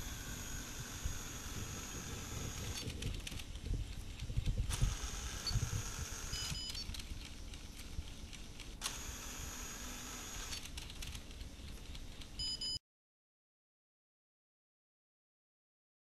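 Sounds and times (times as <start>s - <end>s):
camera handling rumble: 1.7s - 9.0s
camera click: 4.4s - 11.2s.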